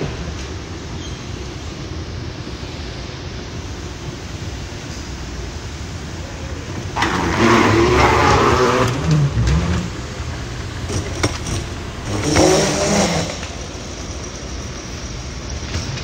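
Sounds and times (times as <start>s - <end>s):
suitcase wheels rumbling on floor: 7.0s - 16.0s.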